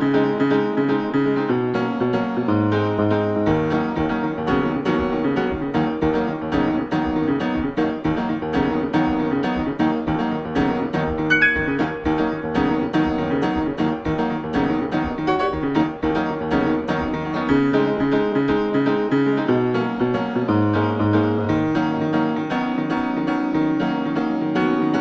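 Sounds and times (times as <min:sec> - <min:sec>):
keyboard playing repeated notes: 0:11.3 - 0:16.1.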